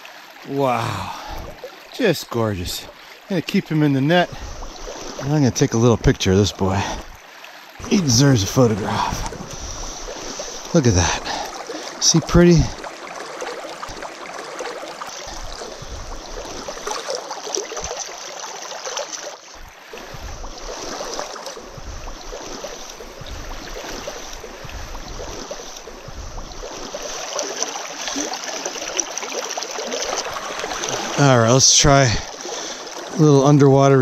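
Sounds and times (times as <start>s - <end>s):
stream rushing over rocks: 0.0s - 34.0s
low microphone bumps: 21.6s - 26.6s.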